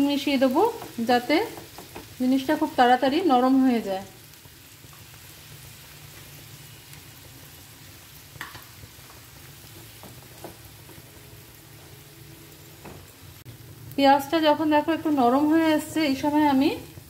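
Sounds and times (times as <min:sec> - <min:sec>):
vegetables sizzling in oil: 0:00.0 - 0:17.0
wooden spatula knocking on pan: 0:00.7 - 0:02.2, 0:09.7 - 0:11.0.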